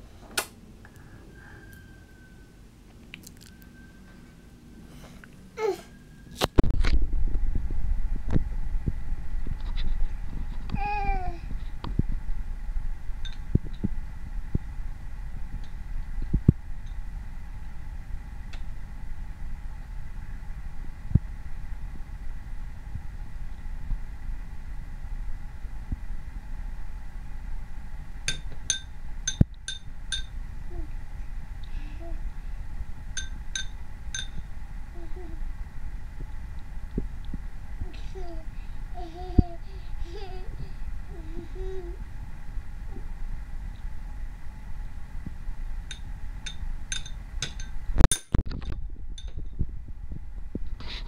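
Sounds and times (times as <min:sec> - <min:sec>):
spoon clinking on glass bowl: 0:33.2 - 0:34.4, 0:45.9 - 0:48.3.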